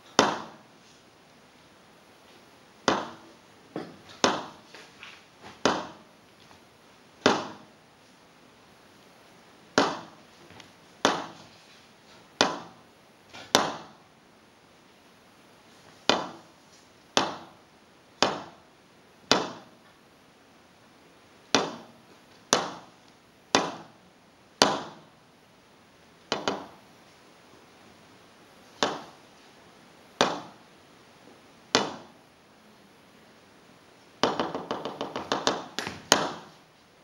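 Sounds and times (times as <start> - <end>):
sharp knocks echoing: 2.8 - 4.6.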